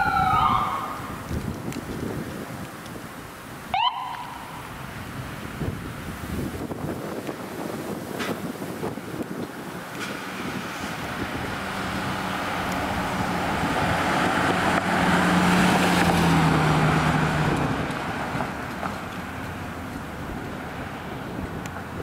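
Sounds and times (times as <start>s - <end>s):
ambulance driving past: 0.0s - 1.3s, 3.7s - 5.6s, 10.1s - 22.0s.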